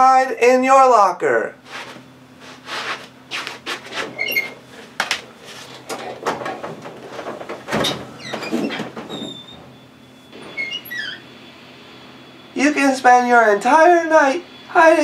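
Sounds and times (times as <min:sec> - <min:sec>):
clothes rustling: 0:01.6 - 0:09.8
short squeaks: 0:03.9 - 0:04.6, 0:07.8 - 0:11.3
metal locker door shutting: 0:05.8 - 0:09.8
steel locker rattling and knocking: 0:05.8 - 0:09.8.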